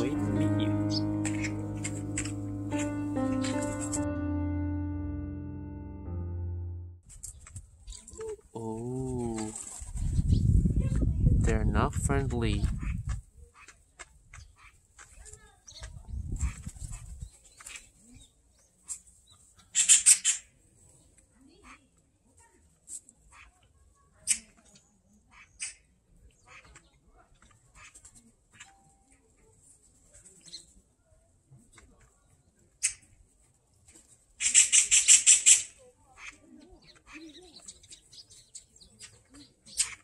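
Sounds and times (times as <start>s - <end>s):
magpie chattering rattle: 34.4s - 35.8s.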